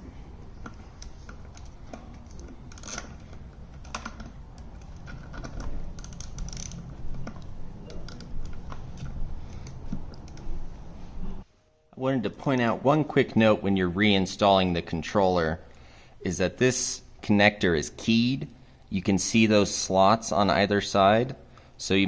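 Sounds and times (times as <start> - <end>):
torque wrench ratcheting clicks: 4.8 - 7.4.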